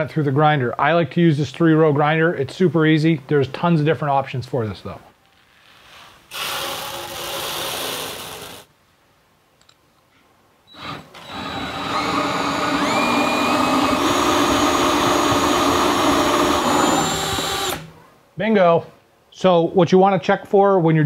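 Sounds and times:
drill driving grain mill grinding: 0:06.3 - 0:08.7, 0:10.7 - 0:17.9.

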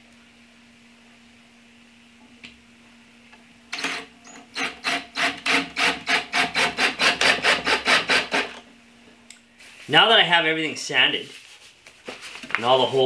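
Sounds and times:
drill driving screw into wood: 0:03.7 - 0:08.6.

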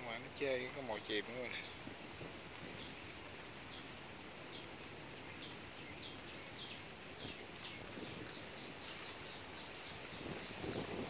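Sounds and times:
faint outdoor background: 0:00.0 - 0:11.0
bird chirping: 0:03.7 - 0:11.0.

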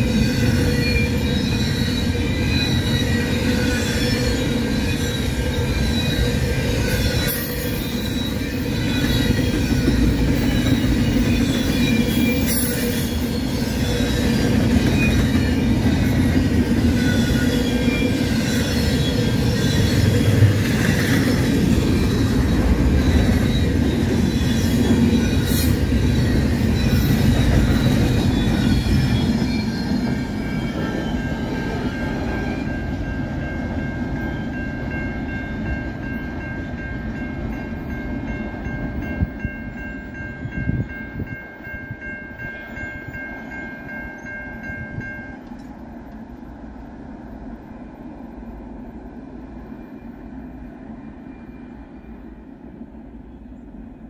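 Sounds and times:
high wheel squeal: 0:00.0 - 0:32.6
freight train wheels rumbling: 0:00.0 - 0:54.0
level-crossing bell ringing: 0:30.6 - 0:45.4.

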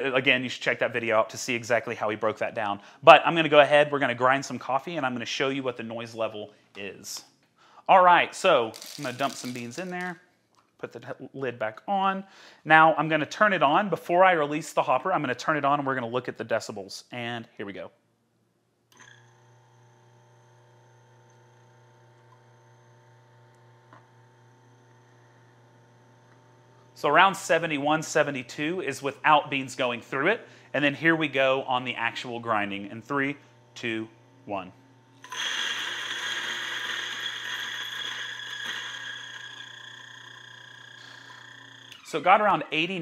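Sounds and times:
coffee beans crunching: 0:08.6 - 0:10.2, 0:35.2 - 0:42.0
coffee grinder motor humming: 0:08.7 - 0:10.0, 0:19.0 - 0:27.0, 0:32.7 - 0:42.2.

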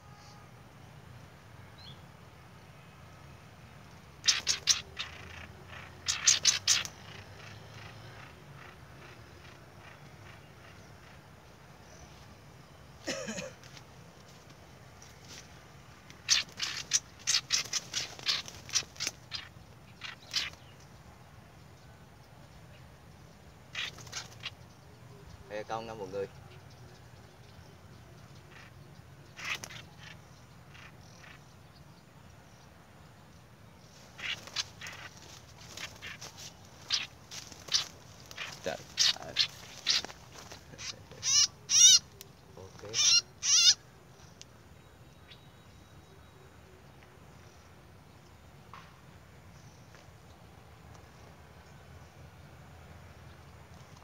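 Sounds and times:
bird distress calls: 0:04.1 - 0:13.7, 0:16.2 - 0:20.8, 0:23.6 - 0:27.1, 0:27.7 - 0:31.6, 0:33.8 - 0:44.4.

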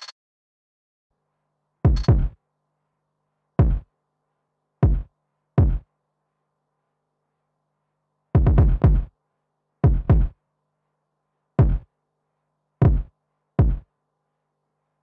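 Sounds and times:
drum machine hits: 0:01.9 - 0:02.4, 0:05.6 - 0:05.8, 0:08.4 - 0:09.1, 0:09.9 - 0:10.3, 0:11.6 - 0:11.8, 0:12.8 - 0:13.8.

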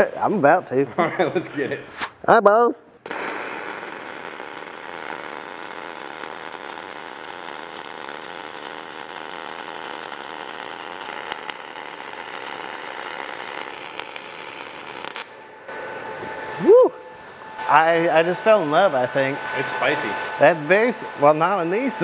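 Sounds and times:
welding arc hissing: 0:03.0 - 0:15.4.

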